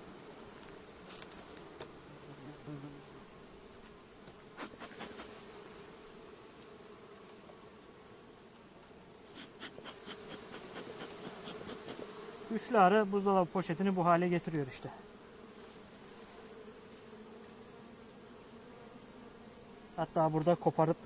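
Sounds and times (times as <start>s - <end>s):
honeybee colony humming: 0.0s - 21.0s
clicks and knocks of hive handling: 0.6s - 2.9s, 3.8s - 5.8s, 8.8s - 12.2s.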